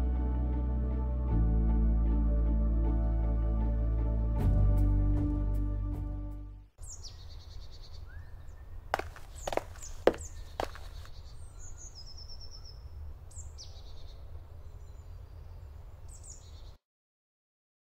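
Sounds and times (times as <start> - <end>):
birds chirping and trilling: 6.8 - 16.8
sharp thuds like footsteps: 9.0 - 11.2.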